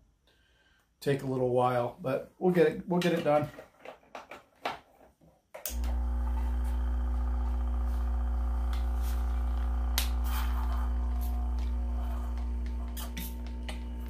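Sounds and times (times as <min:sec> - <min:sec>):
vacuum pump humming: 0:05.7 - 0:14.0.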